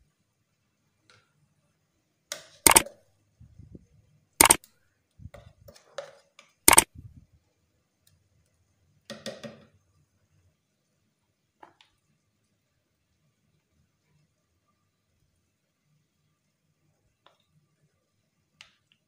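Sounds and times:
sharp clicks: 4.4 - 4.7, 6.7 - 6.9.

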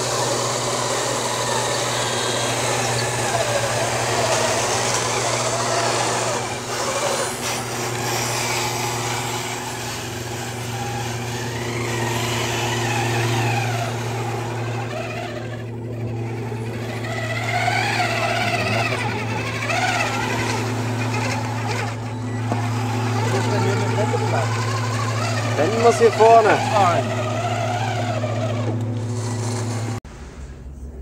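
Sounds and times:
electric motors whining: 0.0 - 31.0
steady low hum: 0.0 - 31.0.

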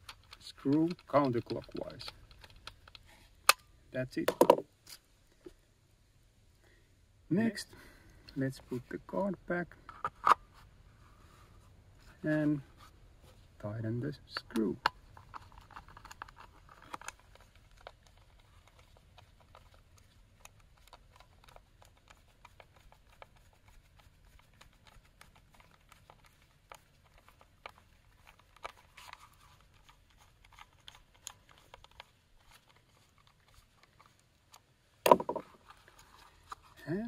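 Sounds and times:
gloved hands handling plastic housing: 0.0 - 3.6, 4.2 - 5.6, 9.7 - 11.0, 14.2 - 36.9
screwdriver clicks and scrapes: 14.7 - 18.8.

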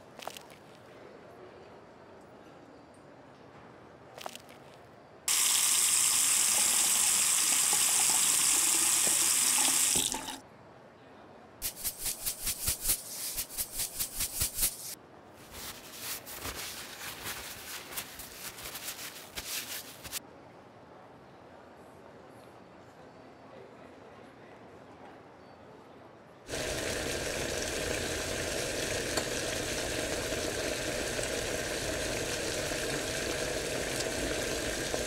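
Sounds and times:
tap water running onto apple: 5.3 - 10.4, 26.5 - 35.0
short scratchy strokes: 11.6 - 20.2.

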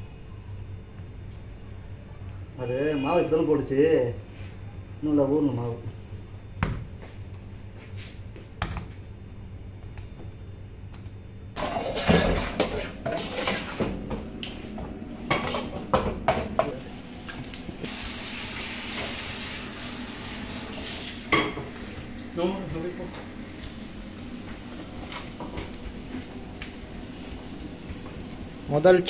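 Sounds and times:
pans and utensils clattering: 11.6 - 14.2, 15.3 - 16.8
eggs sizzling in oil: 11.6 - 29.0.

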